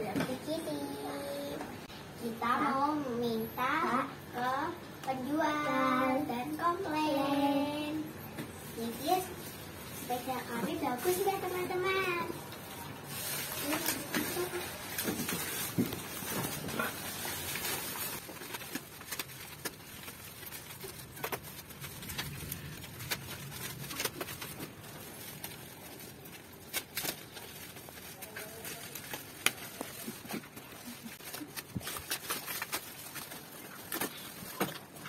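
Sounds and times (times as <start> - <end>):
plastic packaging rustling and tearing: 8.5 - 35.0.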